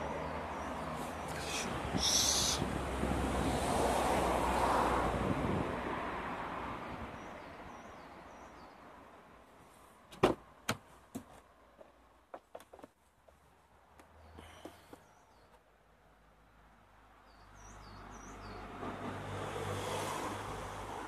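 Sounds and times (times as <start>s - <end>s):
sharp knocks and clicks: 10.1s - 13.0s.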